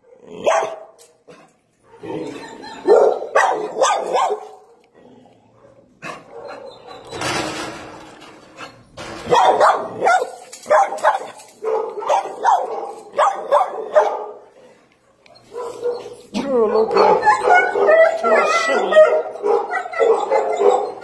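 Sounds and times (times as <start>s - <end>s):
dogs barking: 0.0s - 4.8s, 5.5s - 7.0s, 9.2s - 21.0s.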